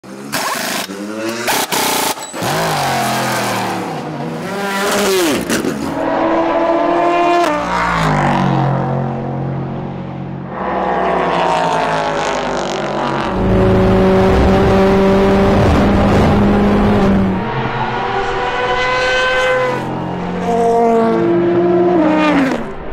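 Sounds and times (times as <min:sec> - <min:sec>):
race car engines: 0:00.0 - 0:22.9.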